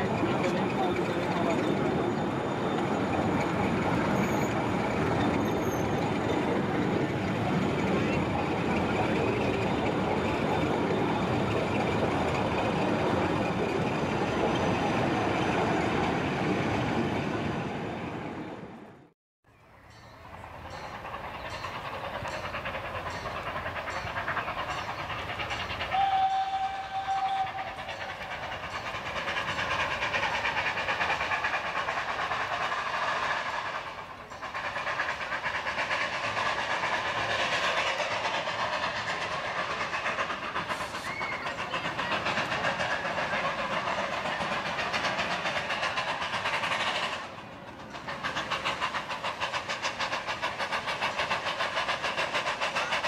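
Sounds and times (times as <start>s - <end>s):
train running noise: 0.0s - 53.0s
steam locomotive whistle: 25.8s - 28.2s.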